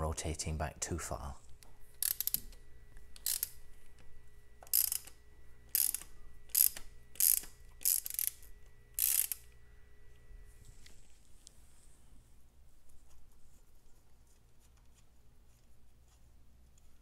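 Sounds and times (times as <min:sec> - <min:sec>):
ratchet wrench clicking: 0:02.0 - 0:02.5, 0:03.2 - 0:03.6, 0:04.7 - 0:09.5.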